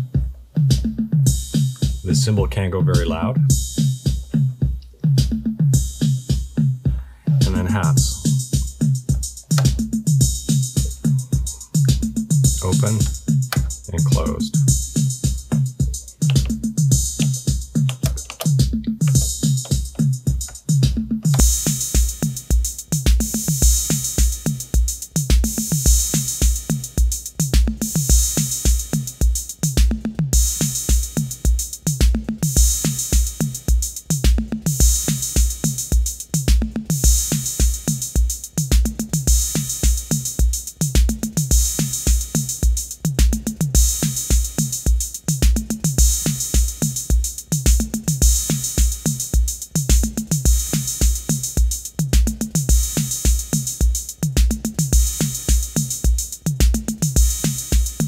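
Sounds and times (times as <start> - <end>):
hi-hats and cymbal wash: 0.0 - 2.4, 3.0 - 58.0
drum machine pattern: 0.0 - 58.0
kick drum hits: 8.5 - 11.0, 14.7 - 22.1.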